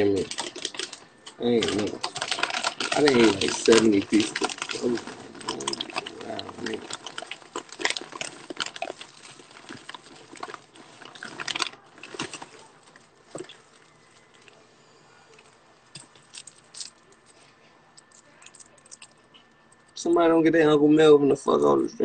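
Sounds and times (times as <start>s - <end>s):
clicks and crackles: 0.0s - 14.6s, 15.3s - 20.0s.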